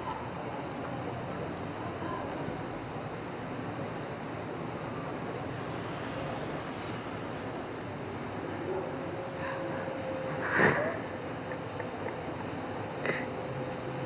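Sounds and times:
steady background noise: 0.0s - 14.0s.

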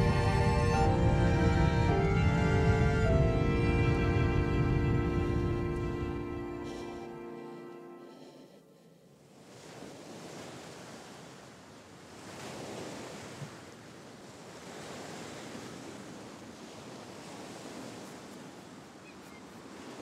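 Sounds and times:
waves breaking on beach: 9.1s - 20.0s.

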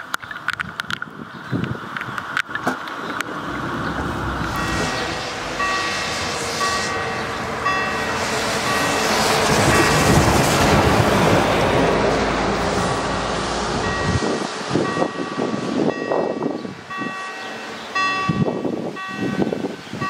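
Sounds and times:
heavy truck passing: 3.1s - 18.7s
level crossing bell dinging: 4.5s - 8.1s.

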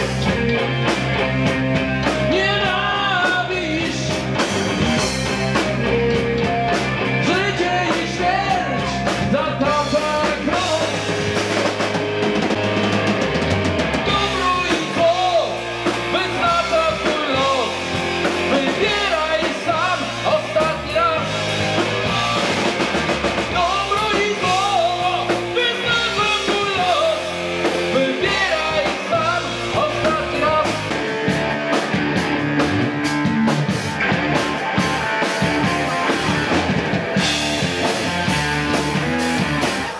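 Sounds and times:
hard rock band playing live: 0.0s - 39.9s.

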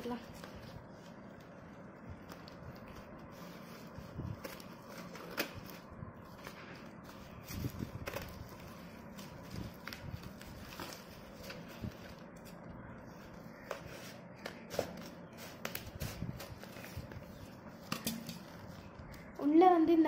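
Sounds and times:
packaging crinkling: 0.2s - 12.9s.

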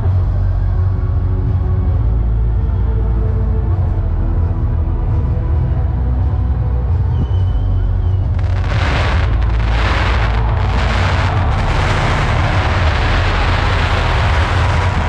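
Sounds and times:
low rumble: 0.0s - 15.0s
pyrotechnics hissing: 8.4s - 15.0s.

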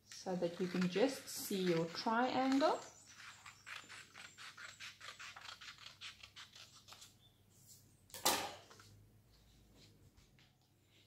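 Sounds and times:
scissors snipping paper: 0.1s - 7.1s.

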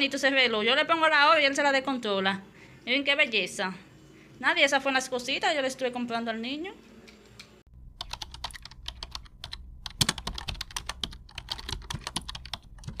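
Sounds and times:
low steady hum: 7.7s - 13.0s
sharp rapid clicks: 8.0s - 13.0s.

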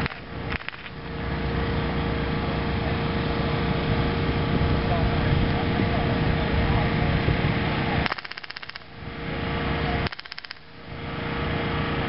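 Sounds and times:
machine gun bursts: 0.0s - 0.9s, 8.0s - 8.9s, 10.0s - 10.6s.

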